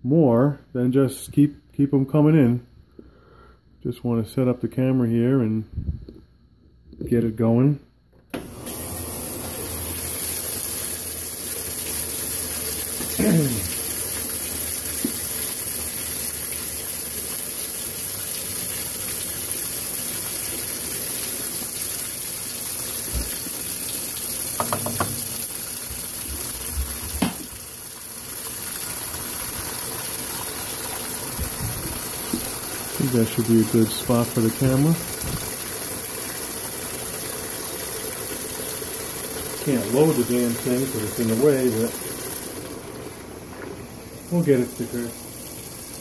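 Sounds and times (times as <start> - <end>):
water rushing into washer tub: 8.3 - 46.0.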